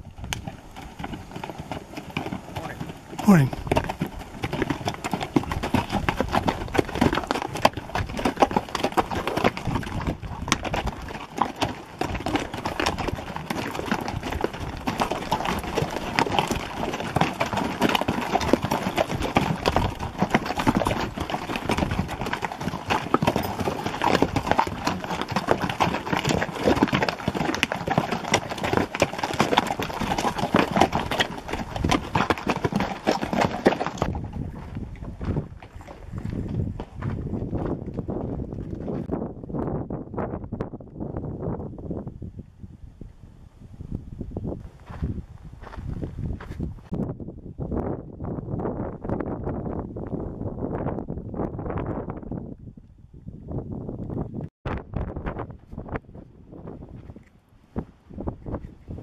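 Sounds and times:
mule hooves clip-clopping on dirt: 0:00.0 - 0:41.6, 0:44.4 - 0:47.2, 0:48.6 - 0:59.0.

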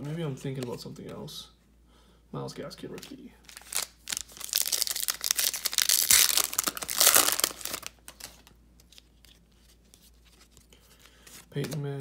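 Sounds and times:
foil wrapper crinkling: 0:03.5 - 0:08.5.

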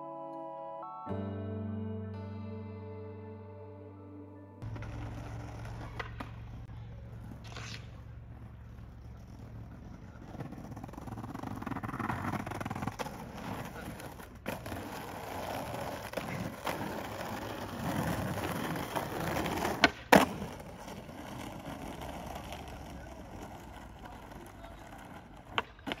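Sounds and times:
skateboard wheels rolling on asphalt: 0:04.6 - 0:26.0
sharp skateboard clacks: 0:04.7 - 0:08.1, 0:09.8 - 0:26.0.

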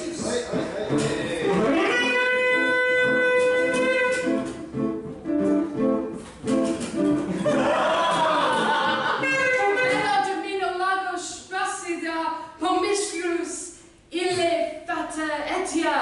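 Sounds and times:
acoustic guitar plucking: 0:00.0 - 0:10.5.

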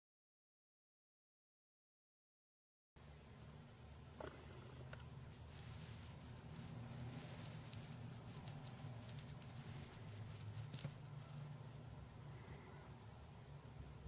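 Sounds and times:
low steady hum: 0:03.0 - 0:14.0.

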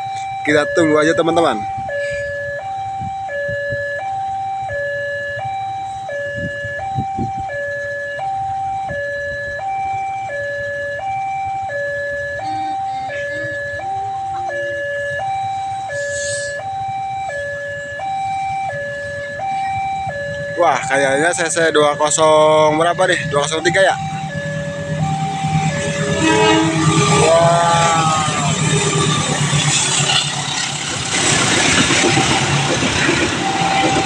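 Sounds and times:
level crossing two-tone alarm: 0:00.0 - 0:34.0.

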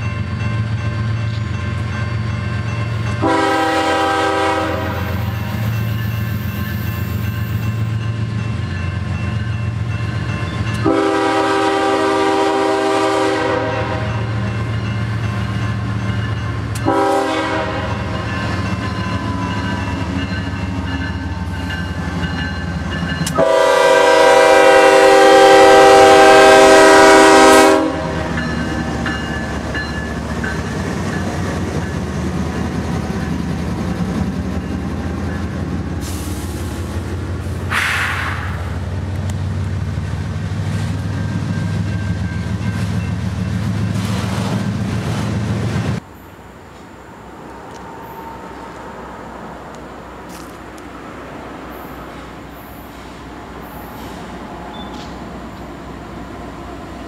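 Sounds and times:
diesel locomotive horn: 0:03.1 - 0:05.8, 0:10.7 - 0:14.5, 0:16.7 - 0:19.9, 0:23.0 - 0:29.0.

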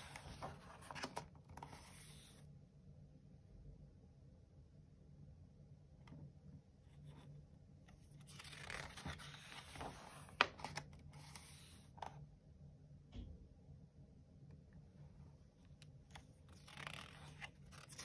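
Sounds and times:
paper page rustling: 0:00.0 - 0:02.4, 0:08.0 - 0:12.0, 0:16.1 - 0:18.0.

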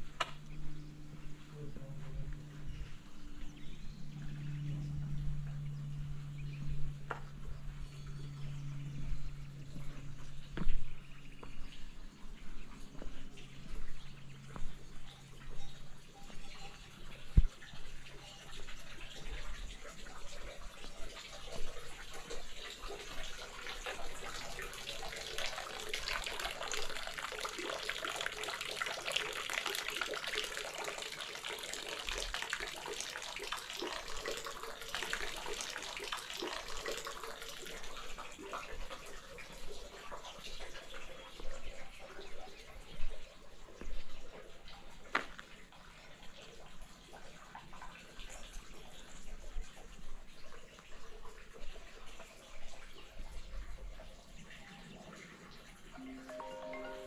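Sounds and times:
running water splashing: 0:17.1 - 0:57.0.

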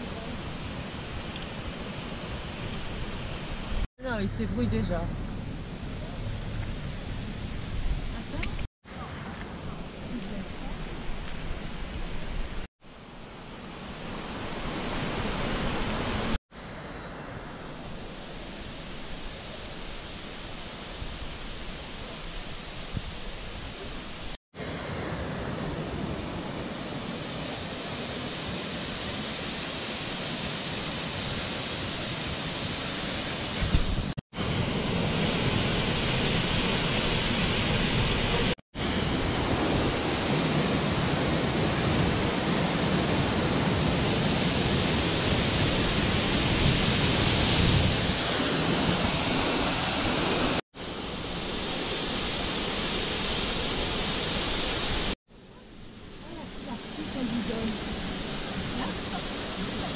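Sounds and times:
waterfall rushing: 0:13.4 - 0:16.4, 0:34.4 - 0:55.2, 0:56.4 - 0:59.9.

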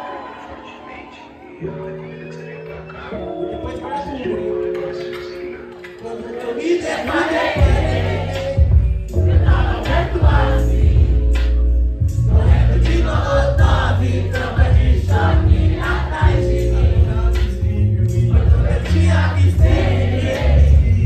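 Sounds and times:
bass-heavy hip-hop beat: 0:01.6 - 0:21.0
rapping on microphone: 0:01.6 - 0:21.0
crowd singing along: 0:06.0 - 0:21.0.

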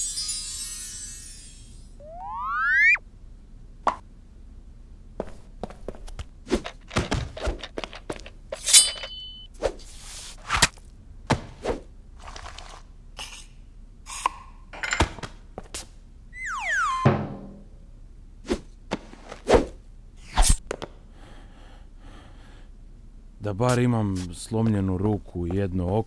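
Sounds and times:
bright ringing: 0:00.0 - 0:03.0
falling whistle-like glide: 0:02.0 - 0:03.0, 0:16.4 - 0:17.1.

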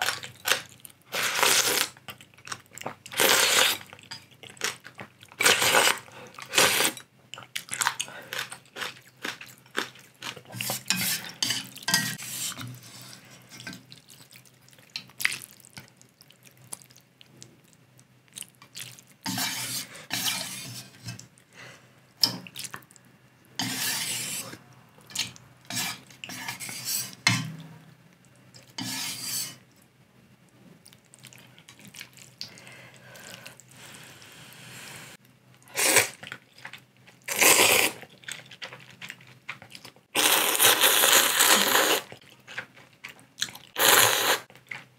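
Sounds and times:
slurping noodles: 0:35.7 - 0:36.2, 0:37.3 - 0:38.0, 0:40.2 - 0:42.2, 0:43.8 - 0:44.5.

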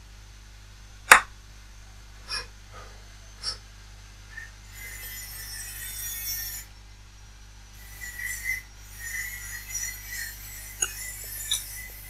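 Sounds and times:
angle grinder grinding: 0:02.2 - 0:03.6, 0:04.3 - 0:06.7, 0:07.8 - 0:12.0.

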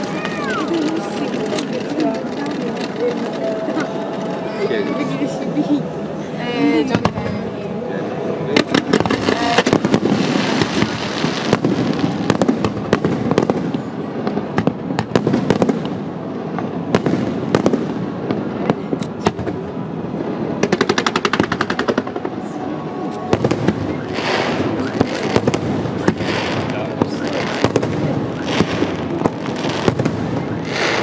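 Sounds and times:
rattling volley of reports: 0:00.0 - 0:05.7
fireworks bangs and shell bursts: 0:08.6 - 0:19.8, 0:20.4 - 0:31.0.

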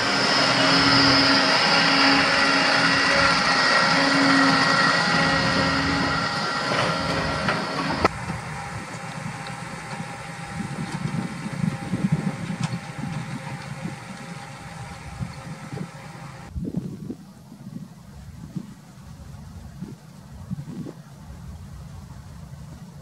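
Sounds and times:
tractor diesel engine under load: 0:00.0 - 0:16.6.

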